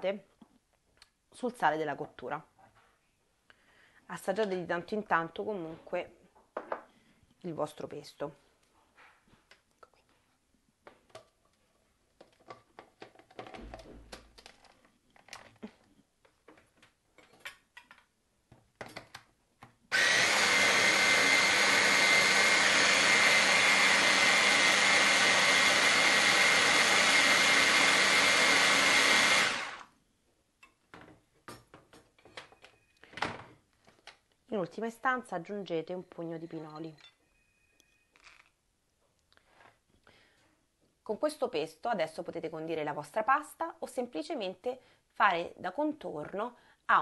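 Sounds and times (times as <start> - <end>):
food chopper motor running: 19.9 - 29.9.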